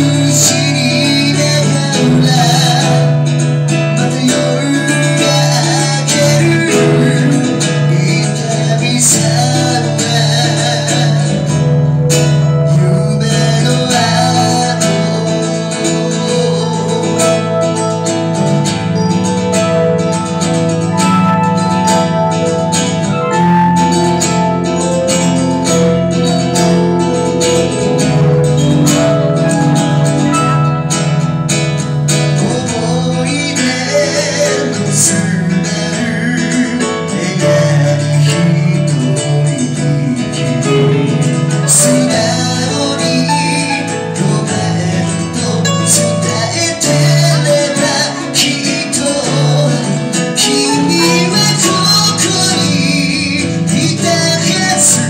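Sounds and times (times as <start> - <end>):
person singing through a pa: 0.0 - 11.7, 12.6 - 18.2, 32.1 - 55.0
acoustic guitar: 0.0 - 55.0
electronic keyboard: 0.0 - 55.0.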